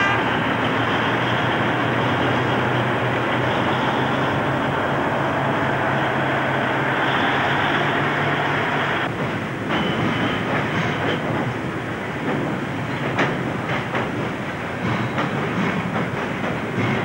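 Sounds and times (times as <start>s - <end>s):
railway wagons rolling on track: 0.0s - 17.0s
wheels clicking over rail joints: 9.0s - 17.0s.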